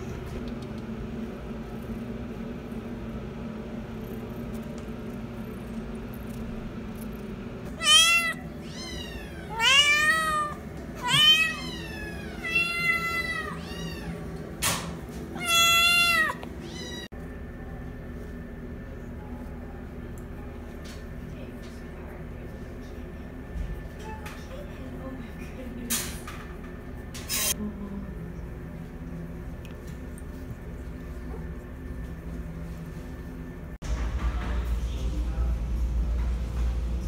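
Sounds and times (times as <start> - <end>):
steady low hum: 0.0 - 37.0
cat meowing: 7.7 - 14.2, 15.4 - 17.1.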